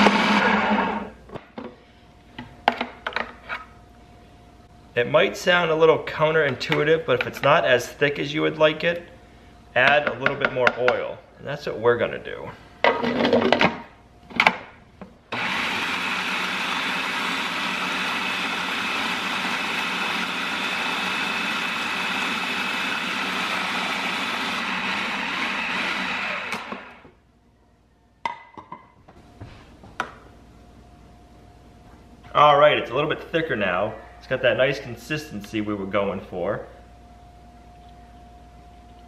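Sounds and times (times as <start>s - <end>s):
food processor motor running: 0.0s - 1.1s, 15.3s - 27.1s.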